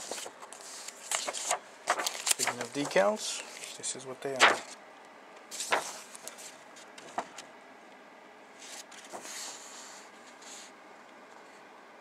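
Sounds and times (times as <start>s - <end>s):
plastic bag crinkling: 1.0s - 4.7s.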